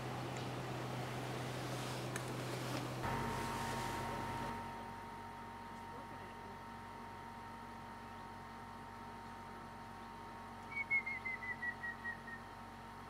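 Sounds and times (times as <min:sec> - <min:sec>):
woodpecker whistled song: 0:10.6 - 0:12.5.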